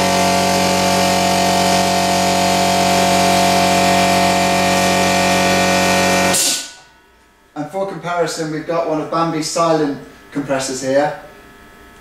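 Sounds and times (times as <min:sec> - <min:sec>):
air compressor running: 0:00.0 - 0:07.0.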